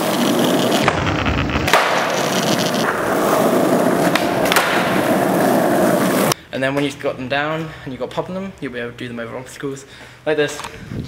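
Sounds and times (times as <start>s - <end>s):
skateboard clacks: 0.0s - 6.3s
skateboard wheels rolling: 0.0s - 6.4s.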